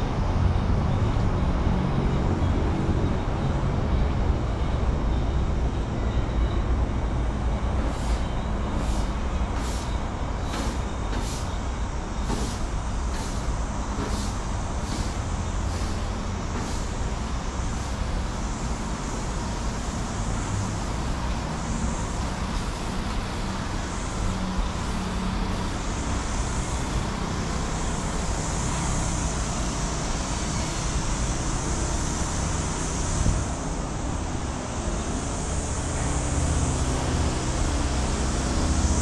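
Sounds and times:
road traffic rumble: 0.0s - 39.0s
constant high hiss: 11.4s - 39.0s.

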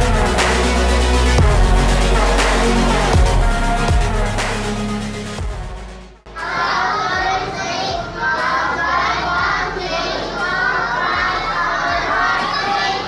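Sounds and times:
electronic background music: 0.0s - 13.0s
children talking and calling out: 6.3s - 13.0s.

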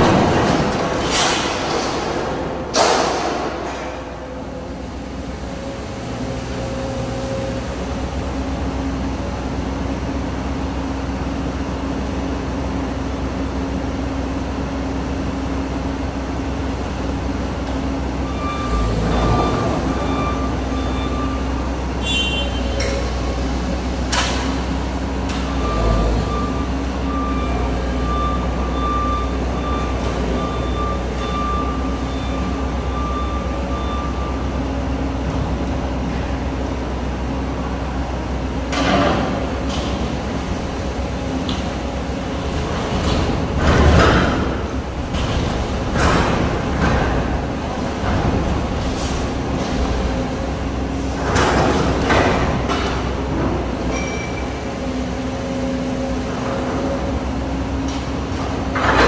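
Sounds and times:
metal bangs and clanks: 0.0s - 4.7s, 42.5s - 50.3s
excavator diesel engine running: 0.0s - 59.0s.

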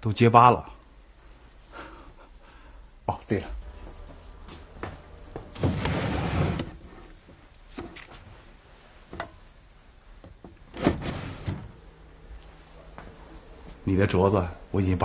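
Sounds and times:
wooden drawer scraping open: 5.5s - 7.2s, 10.6s - 11.8s.

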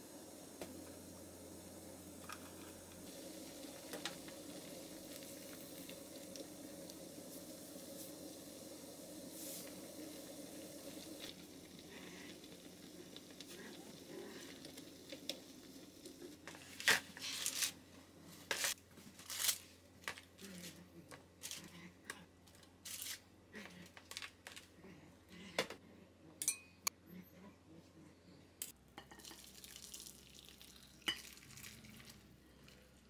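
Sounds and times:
pot simmering with soft hiss: 0.0s - 19.0s, 23.5s - 33.0s
crinkling and rustling: 22.4s - 24.8s.

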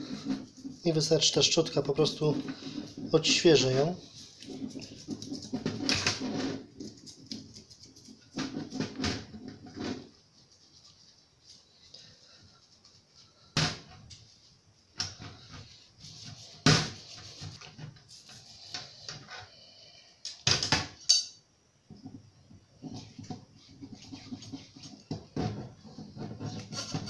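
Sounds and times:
brush bristles scratching: 0.0s - 8.8s, 9.9s - 13.4s, 22.8s - 27.0s.

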